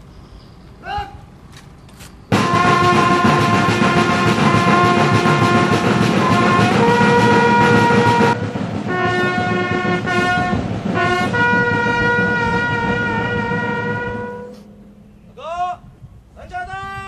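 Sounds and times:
bugle call: 0:02.3 - 0:15.7.

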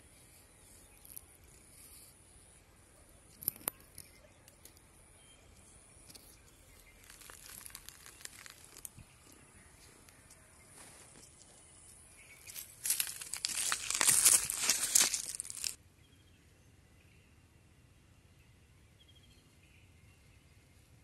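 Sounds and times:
cat claws scratching bark: 0:06.1 - 0:09.2, 0:12.4 - 0:15.8.

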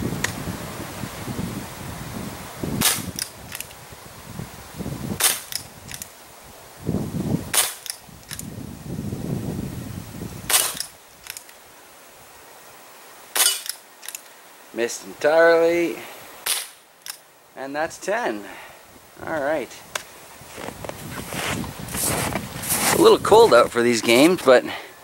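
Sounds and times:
pellet revolver pops: 0:05.2 - 0:06.0, 0:10.5 - 0:11.4, 0:16.4 - 0:17.2.

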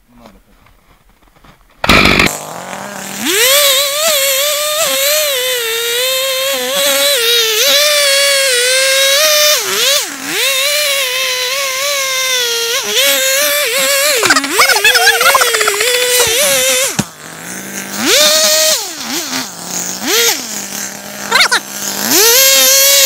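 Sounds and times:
chainsaw cutting tree trunk: 0:01.8 - 0:23.0.

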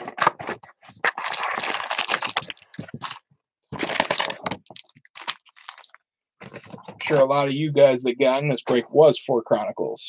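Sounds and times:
foil packs crinkling: 0:00.1 - 0:06.0.

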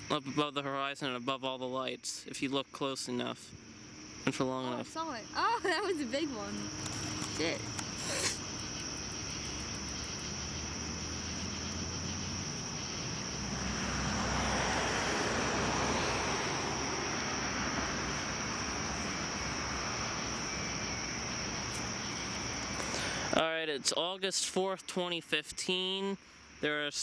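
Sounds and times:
distant engine passing by: 0:05.0 - 0:23.4.

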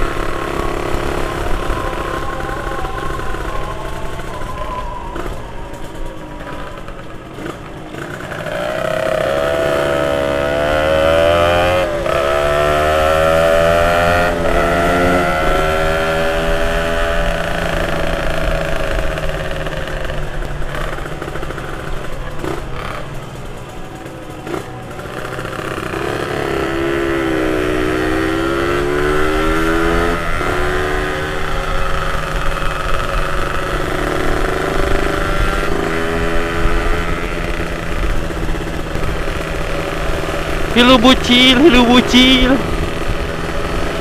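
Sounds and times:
motorcycle engine revving: 0:00.0 - 0:44.0.

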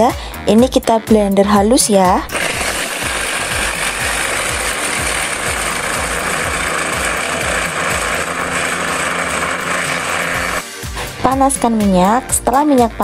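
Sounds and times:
electric blender running: 0:02.2 - 0:11.2.

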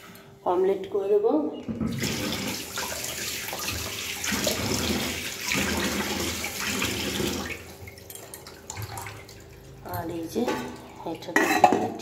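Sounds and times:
water running from a tap: 0:01.9 - 0:11.3.

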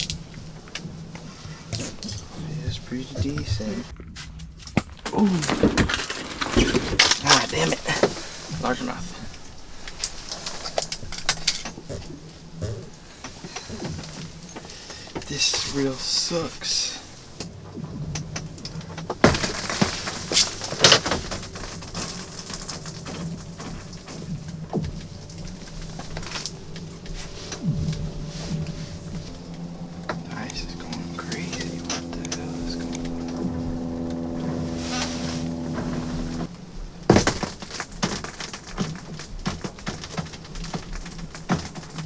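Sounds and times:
steady hum: 0:00.0 - 0:04.7, 0:07.1 - 0:42.0
clothing and tackle rustling: 0:05.3 - 0:42.0
lake ice cracking thump: 0:19.1 - 0:28.3, 0:37.0 - 0:42.0.

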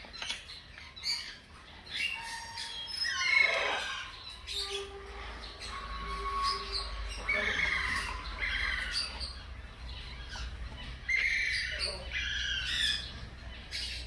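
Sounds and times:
hamster pups squeaking: 0:05.6 - 0:14.0.

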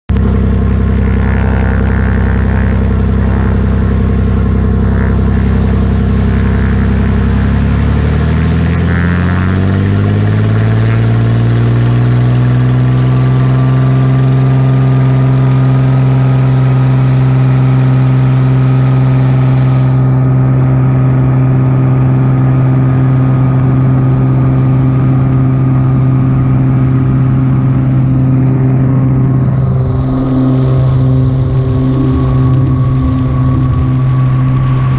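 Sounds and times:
aircraft engine and propeller: 0:00.1 - 0:34.9.

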